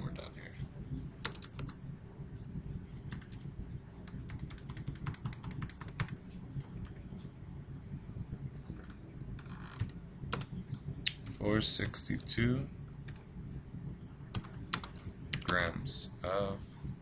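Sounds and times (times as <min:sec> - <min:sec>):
low steady hum: 0:00.0 - 0:17.0
keyboard typing: 0:01.2 - 0:01.8, 0:03.1 - 0:07.0, 0:14.3 - 0:15.7.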